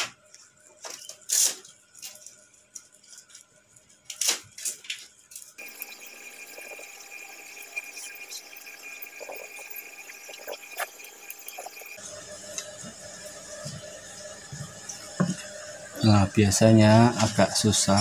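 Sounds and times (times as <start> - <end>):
steady hiss with high tone: 5.6 - 18.0.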